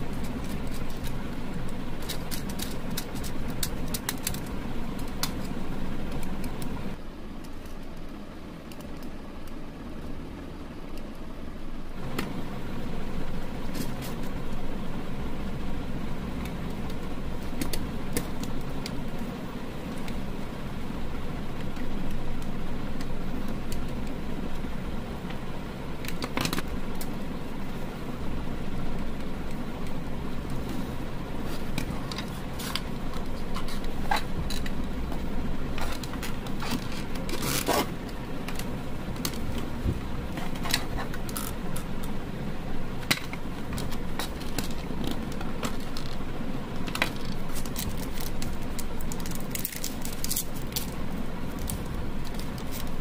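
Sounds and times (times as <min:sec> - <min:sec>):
clicks and scrapes of plastic parts: 0:00.0 - 0:06.8, 0:26.0 - 0:27.1, 0:29.2 - 0:42.1, 0:43.0 - 0:53.0
low background rumble: 0:00.0 - 0:53.0.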